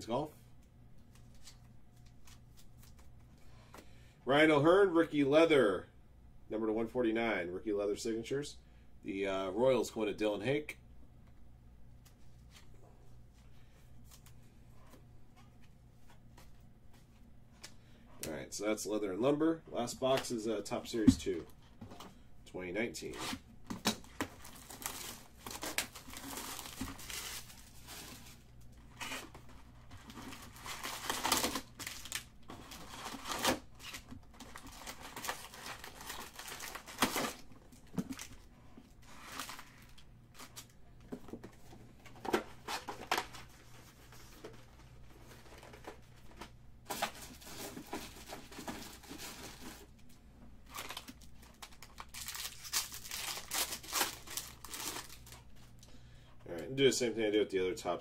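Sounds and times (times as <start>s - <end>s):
wrappers tearing and crinkling: 24.0s - 38.5s, 50.6s - 55.6s.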